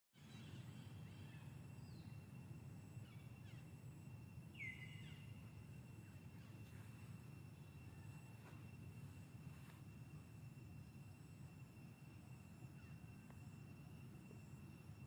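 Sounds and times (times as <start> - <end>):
bird chirps: 4.5 - 5.4.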